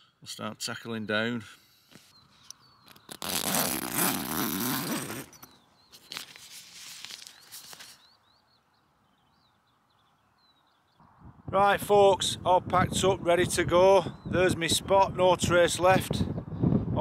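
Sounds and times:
small birds chirping: 0:00.0 - 0:11.3, 0:13.8 - 0:14.7
tent zip pulled open: 0:02.9 - 0:08.0
tent fabric rustling: 0:03.0 - 0:08.1.

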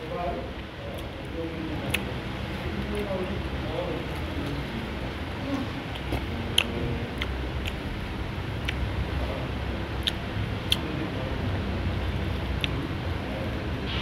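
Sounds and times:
low background rumble: 0:00.0 - 0:14.0
mouth clicks and lip smacks: 0:01.8 - 0:02.1, 0:05.9 - 0:07.9, 0:08.6 - 0:08.8, 0:09.9 - 0:10.9, 0:12.3 - 0:12.8
person chewing: 0:01.8 - 0:02.1, 0:05.6 - 0:08.0, 0:08.6 - 0:08.8, 0:09.9 - 0:10.8, 0:12.2 - 0:12.8.

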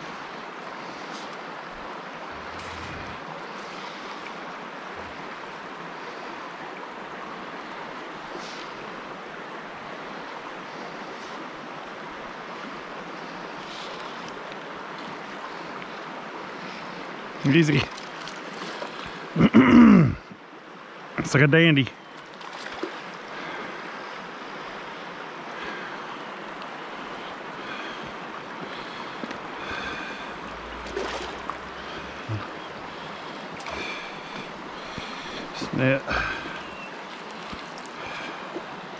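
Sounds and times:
creek water running: 0:00.0 - 0:38.9
faint brief splashes: 0:30.8 - 0:31.8.

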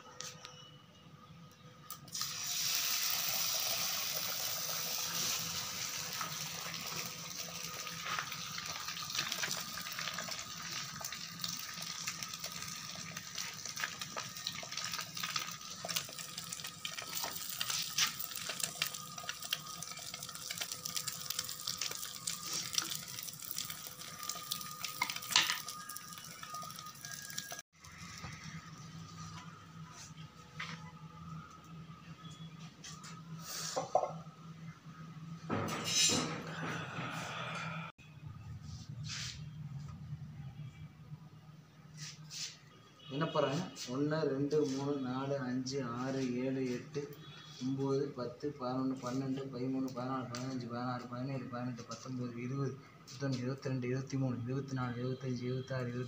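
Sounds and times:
egg sizzling on a griddle: 0:02.1 - 0:28.6.

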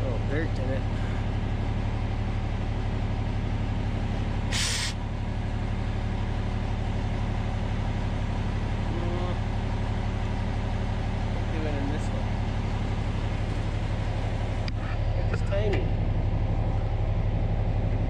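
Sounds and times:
engine idling: 0:00.0 - 0:18.0
short burst of hiss: 0:04.5 - 0:05.0.

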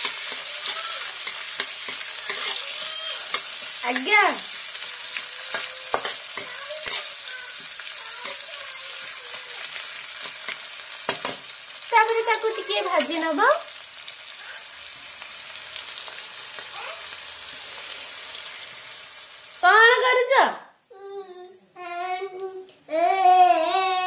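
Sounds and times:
onions sizzling in hot oil: 0:00.0 - 0:20.1
high-pitched voice: 0:02.4 - 0:03.3, 0:16.7 - 0:17.1, 0:20.9 - 0:24.0.

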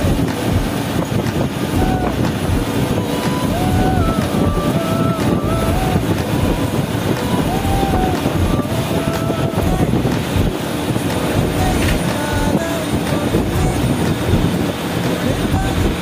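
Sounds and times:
coach engine and tyres droning: 0:00.0 - 0:16.0.

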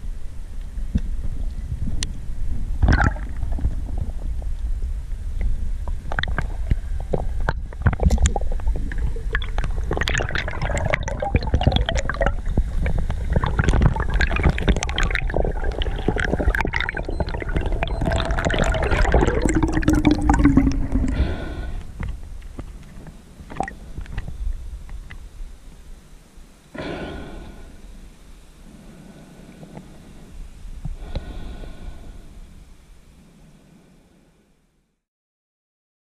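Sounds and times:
low underwater rumble: 0:00.0 - 0:25.6
water gurgling and sloshing underwater: 0:00.8 - 0:25.3.

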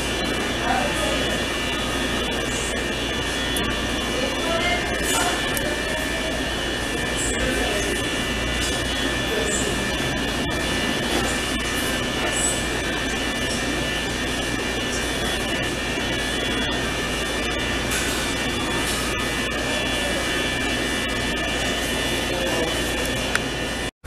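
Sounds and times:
machine drone with high whine: 0:00.0 - 0:23.9.

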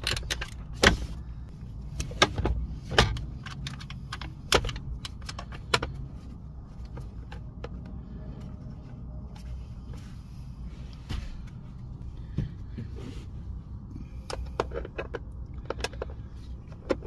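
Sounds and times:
bolts and hand tools clinking: 0:00.0 - 0:01.2.

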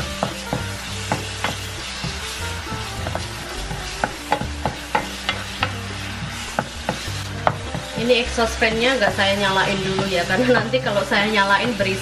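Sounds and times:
spice paste sizzling in a pan: 0:00.0 - 0:12.0
spatula knocking against pan: 0:00.1 - 0:02.2, 0:04.0 - 0:05.8, 0:06.5 - 0:08.1.

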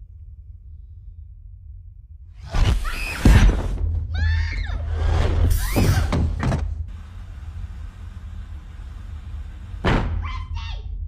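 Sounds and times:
low steady hum: 0:00.0 - 0:02.4.

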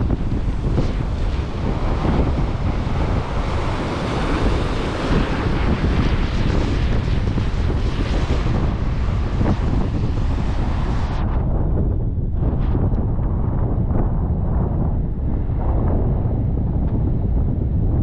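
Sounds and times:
ocean surf rushing: 0:00.0 - 0:11.2
wind buffeting microphone: 0:00.0 - 0:18.0.

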